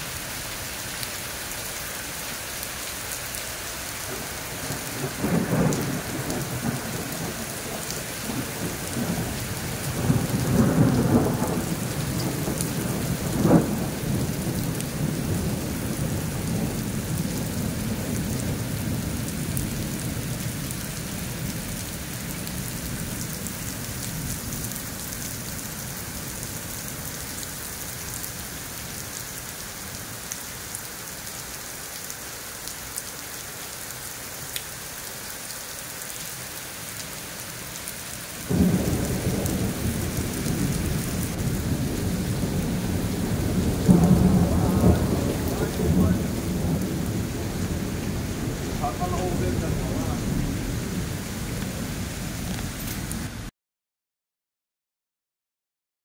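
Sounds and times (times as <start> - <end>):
heavy rain on leaves: 0.0 - 53.5
thunder rumbling: 4.1 - 21.6, 38.5 - 53.4
sharp thunder crack: 9.9 - 16.8, 38.5 - 51.8.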